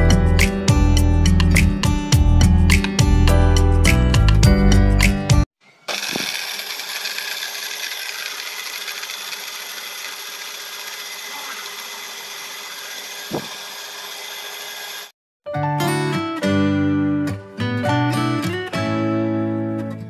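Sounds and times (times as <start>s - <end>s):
blender motor grinding: 5.8s - 15.2s.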